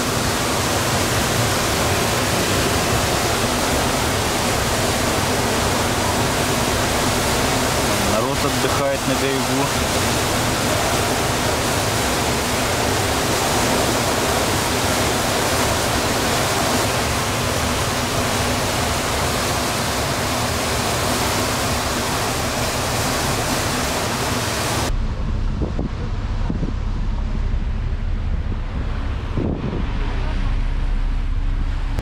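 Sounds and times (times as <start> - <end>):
steady rushing noise: 0.0 - 32.0
wind buffeting microphone: 24.8 - 32.0.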